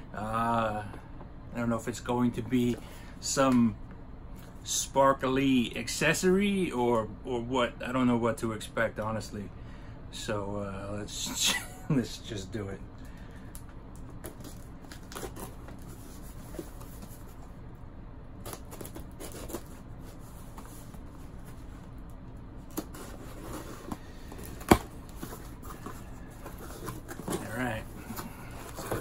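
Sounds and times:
cardboard and packing rustling: 13.9 - 17.6, 18.4 - 29.0
tape tearing: 14.0 - 16.7, 18.4 - 29.0.

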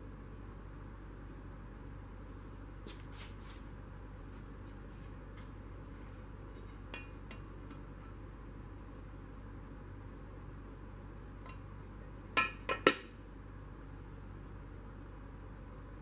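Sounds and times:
steady low hum: 0.0 - 16.0
light clicks of metal parts: 6.5 - 8.2, 11.4 - 13.1.

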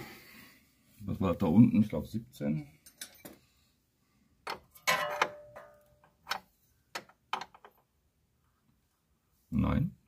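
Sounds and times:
metal wrenches clinking: 2.8 - 3.4, 4.5 - 7.8.

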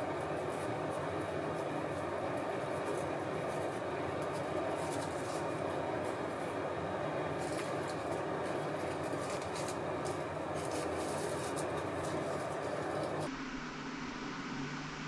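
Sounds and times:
steady machine hum: 0.0 - 15.0
plastic wrap crinkling: 7.3 - 13.3.

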